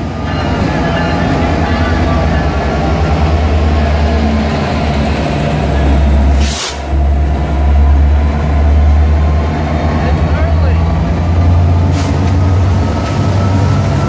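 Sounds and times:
diesel locomotive engine rumble: 0.0 - 14.0
train rolling noise: 0.0 - 14.0
short sharp hiss: 6.3 - 6.9.

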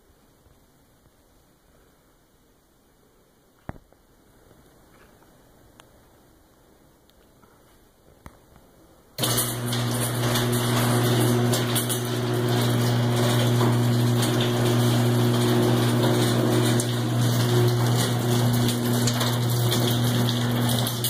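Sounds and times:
garage door moving: 9.2 - 21.0
garage door opener motor hum: 9.2 - 21.0.

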